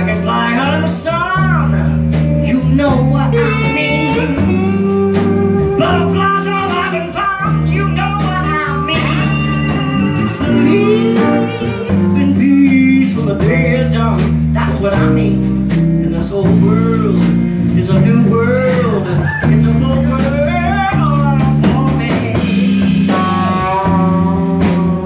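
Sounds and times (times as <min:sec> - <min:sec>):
live blues band playing: 0:00.0 - 0:25.0
woman singing: 0:05.7 - 0:13.1, 0:18.0 - 0:22.8.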